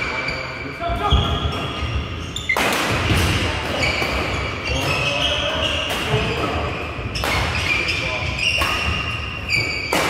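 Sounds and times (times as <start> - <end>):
rackets hitting shuttlecock: 2.4 - 7.8, 8.4 - 10.0
shoes squeaking on wooden floor: 3.7 - 10.0.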